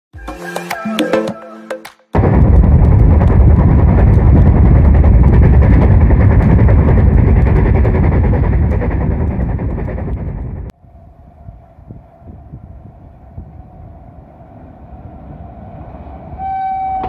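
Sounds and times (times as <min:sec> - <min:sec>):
train wheels rumbling on rails: 0:02.2 - 0:10.8
wind rush: 0:02.2 - 0:17.0.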